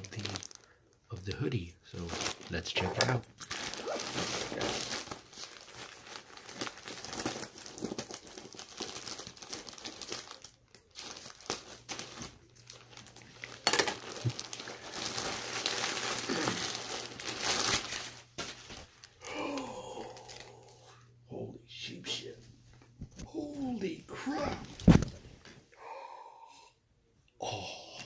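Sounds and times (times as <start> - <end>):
plastic bag crinkling and tearing: 0.0 - 20.8
sharp plastic crack: 13.4 - 14.6, 24.7 - 25.3.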